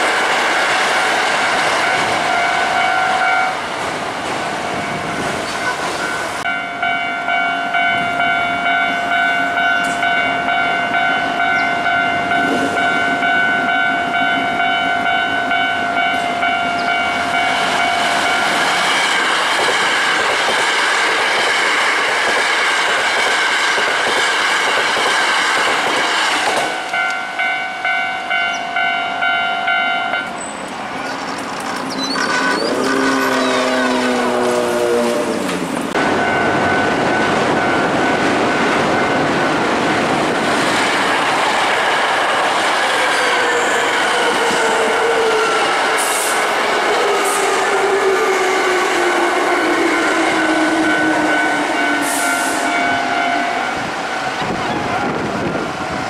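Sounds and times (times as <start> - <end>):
electric trains passing: 0.0 - 56.0
level crossing bell ringing: 4.9 - 18.5, 26.9 - 30.3, 49.2 - 54.4
train wheels clacking over rail joints: 17.6 - 27.2.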